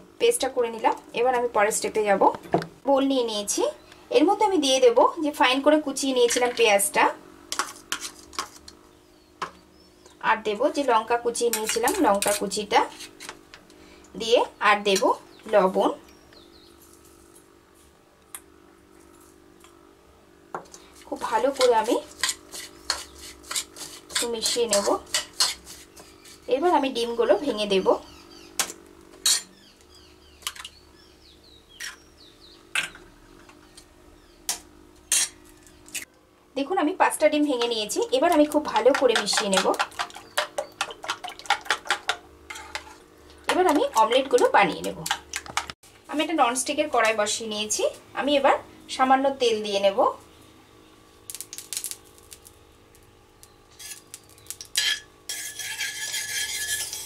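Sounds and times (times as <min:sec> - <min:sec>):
spoon scraping pan bottom: 0:07.5 - 0:08.8, 0:11.4 - 0:13.4, 0:21.1 - 0:26.5, 0:29.2 - 0:29.5, 0:35.0 - 0:35.5, 0:37.6 - 0:45.8, 0:53.7 - 0:57.0
spoon tapping eggshells: 0:38.7 - 0:42.2
metal spoon clinking on a pan: 0:54.6 - 0:57.0.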